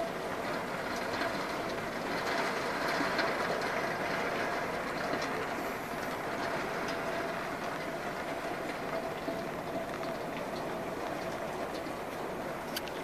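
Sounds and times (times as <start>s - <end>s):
raindrops tapping on glass: 0.0s - 5.6s
heavy rain and wind on window: 0.0s - 13.0s.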